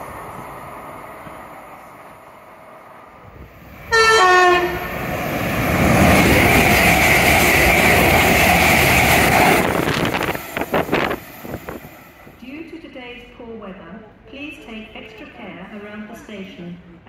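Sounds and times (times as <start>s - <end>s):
train rushing past: 0.0s - 12.9s
train horn blast: 3.9s - 4.9s.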